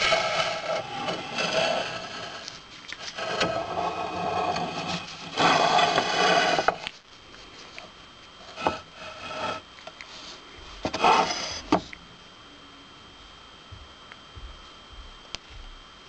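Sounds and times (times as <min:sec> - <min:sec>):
rubbing and scraping on hard surface: 0:00.0 - 0:07.8, 0:08.4 - 0:12.0.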